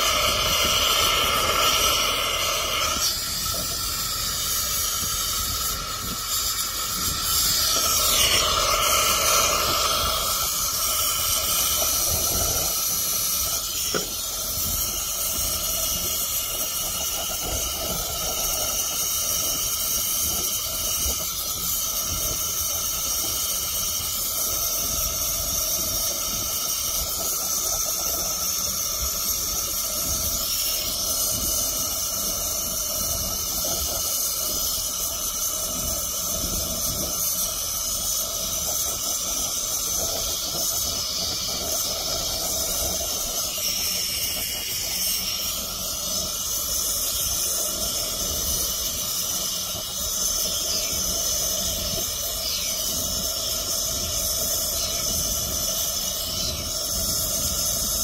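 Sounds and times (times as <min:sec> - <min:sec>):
soldering hiss and sizzle: 0:00.0 - 0:58.0.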